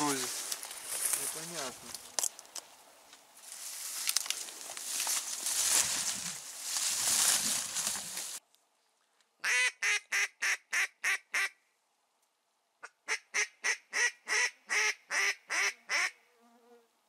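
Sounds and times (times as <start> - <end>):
duck call quacks: 9.4 - 11.6, 12.8 - 16.2.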